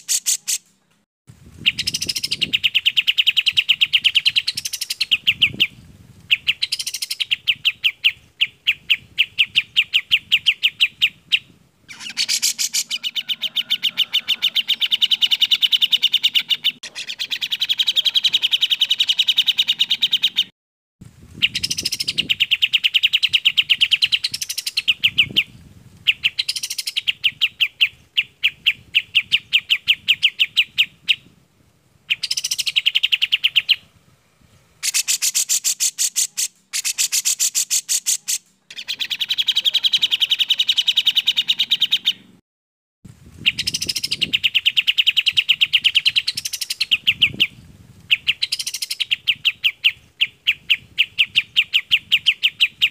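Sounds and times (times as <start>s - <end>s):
bulbuls singing: 1.6s - 20.5s, 21.4s - 31.3s, 32.0s - 33.9s, 34.8s - 42.3s, 43.4s - 52.9s.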